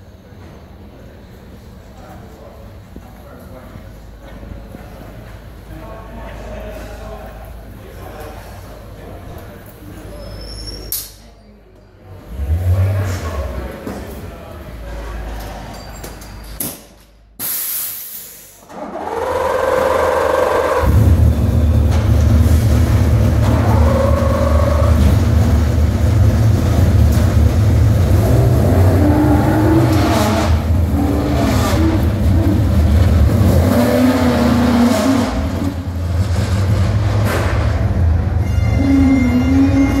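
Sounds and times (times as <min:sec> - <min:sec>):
race car engines revving: 0:12.1 - 0:15.7, 0:18.7 - 0:40.0.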